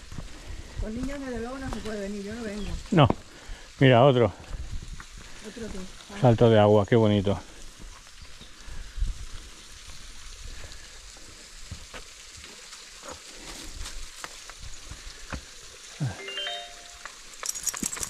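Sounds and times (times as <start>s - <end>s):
brief call: 16.0s - 17.1s.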